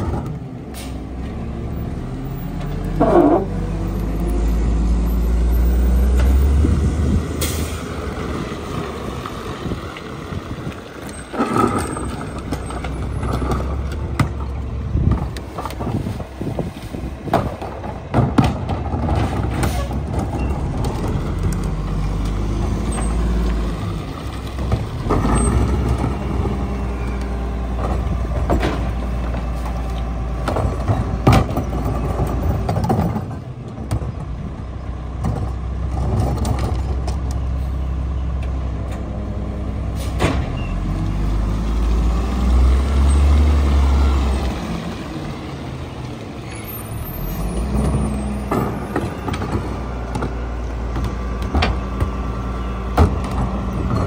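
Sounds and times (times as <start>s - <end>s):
garbage truck diesel engine: 0.0s - 54.0s
carts banging against hopper: 17.2s - 21.9s, 27.7s - 29.8s, 30.4s - 34.2s.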